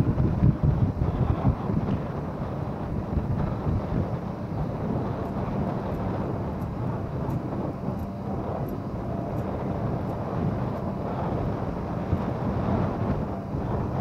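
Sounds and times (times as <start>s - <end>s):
engine and road rumble: 0.0s - 14.0s
faint high ticks: 5.2s - 10.9s.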